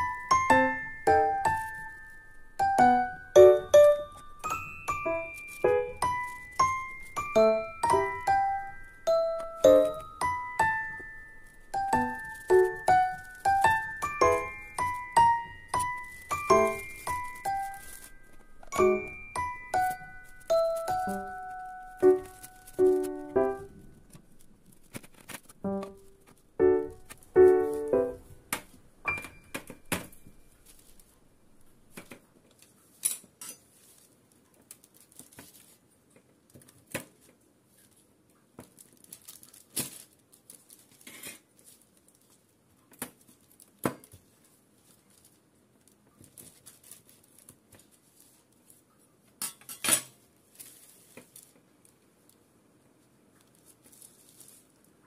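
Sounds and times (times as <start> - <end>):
piano notes: 0.0 - 31.0.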